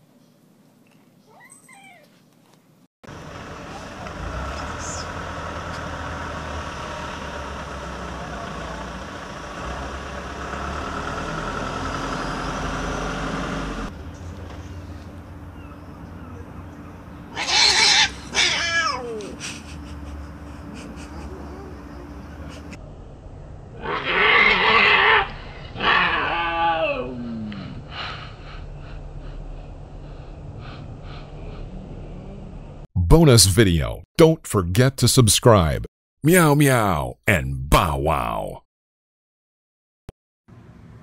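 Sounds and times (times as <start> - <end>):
outdoor background: 0.0 - 38.6
vehicle engine humming: 3.1 - 17.5, 18.1 - 23.8, 27.6 - 33.2
cat yowling: 17.3 - 19.4, 23.8 - 27.3
cat hissing: 17.3 - 20.0.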